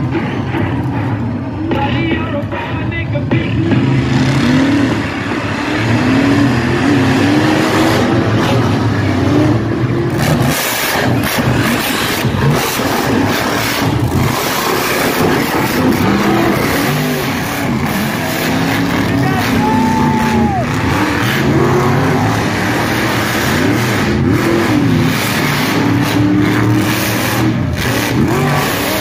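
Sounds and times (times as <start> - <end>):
truck engines revving: 0.0 - 29.0.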